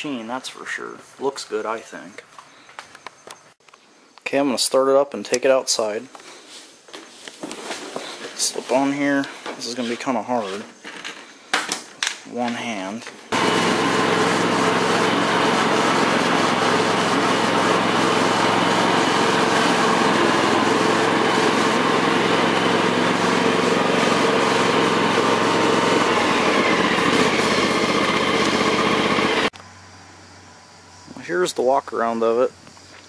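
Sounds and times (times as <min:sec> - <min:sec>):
lawn tractor engine running: 0:13.3 - 0:29.6.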